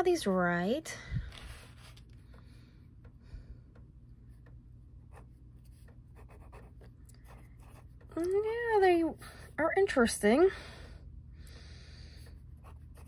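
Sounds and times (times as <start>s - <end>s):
pen writing on paper: 5.1s - 8.0s.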